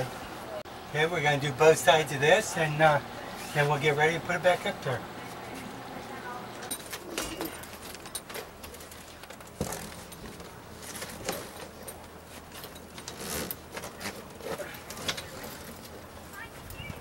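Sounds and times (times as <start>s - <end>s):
zipper rasping: 13.0s - 15.7s.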